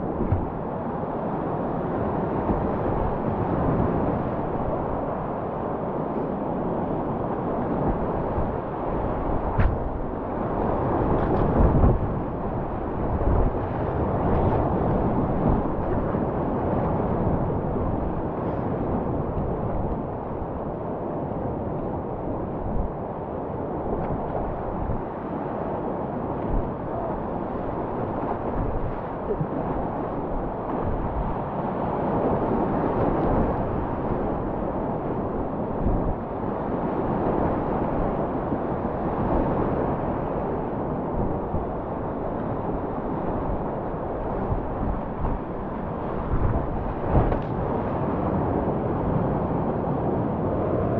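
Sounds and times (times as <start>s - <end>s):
wind buffeting microphone: 0.0s - 50.9s
water thumps on boat: 0.2s - 0.5s, 9.6s - 10.0s, 47.0s - 47.6s.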